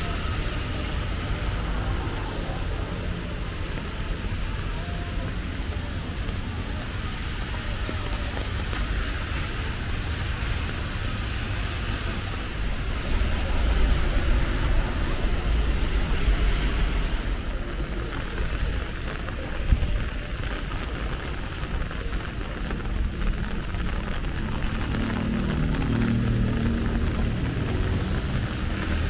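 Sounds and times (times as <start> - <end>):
low traffic rumble: 0.0 - 29.0
rain hissing: 0.0 - 29.0
tyres on wet road: 0.0 - 29.0.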